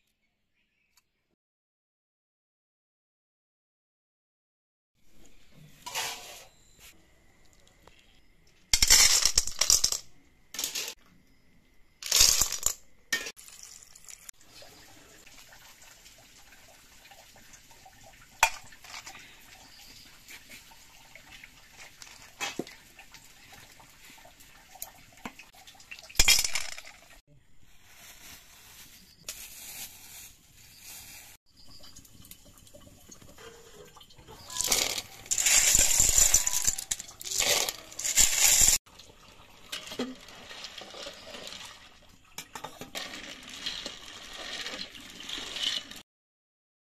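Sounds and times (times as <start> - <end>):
snail shells clinking: 26.2 - 27.0, 34.4 - 38.8
rice ground in stone mortar: 27.6 - 31.8.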